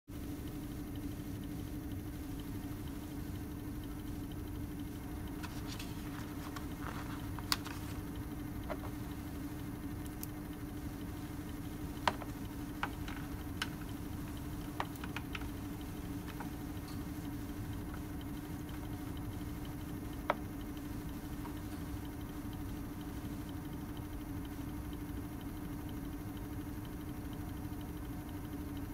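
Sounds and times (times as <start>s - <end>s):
low equipment hum: 0.1s - 28.9s.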